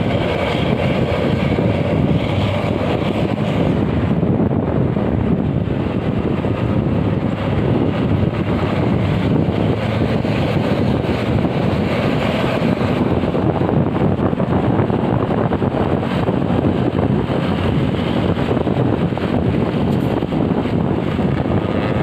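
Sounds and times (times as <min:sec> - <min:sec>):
wind noise on microphone: 0:00.0 - 0:22.0.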